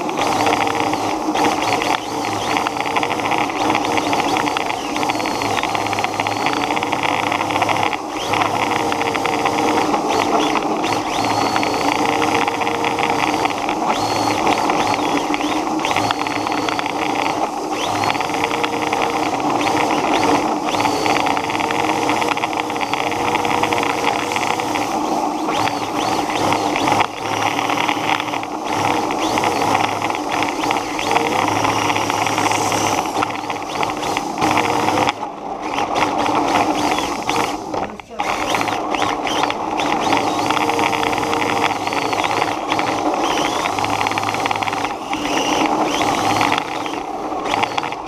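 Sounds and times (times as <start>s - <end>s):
rc car motor whine: 0.0s - 48.0s
rc car tyres hissing: 27.8s - 35.1s.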